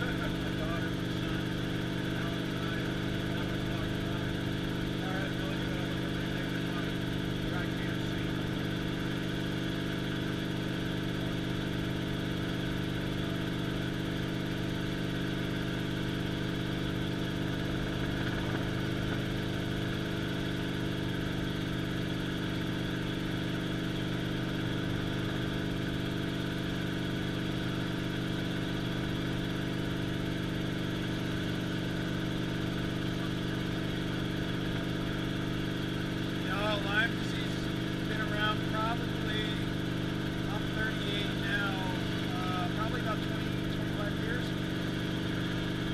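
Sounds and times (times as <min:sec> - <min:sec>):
helicopter engine and rotor drone: 0:00.0 - 0:45.9.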